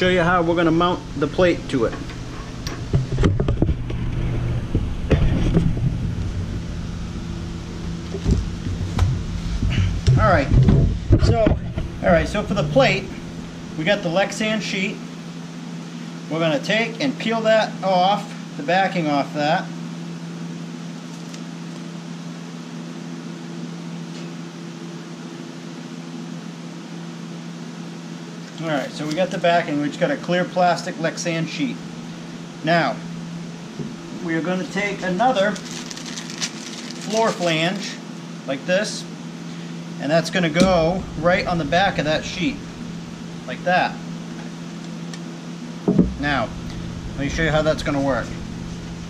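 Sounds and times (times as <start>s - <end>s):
low rumble: 0.0s - 13.8s, 40.5s - 44.6s, 45.9s - 49.0s
machine humming: 0.0s - 16.4s, 31.3s - 49.0s
sharp knocks and clicks: 45.8s - 46.2s.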